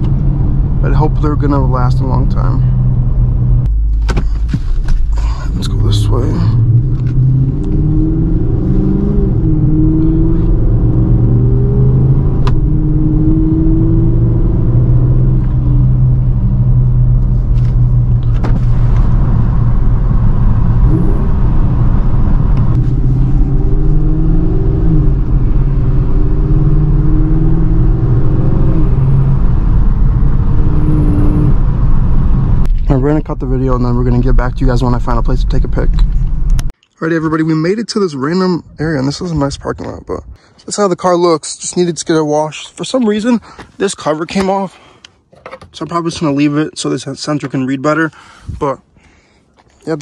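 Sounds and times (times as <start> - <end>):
car engine droning: 0.0 - 36.7.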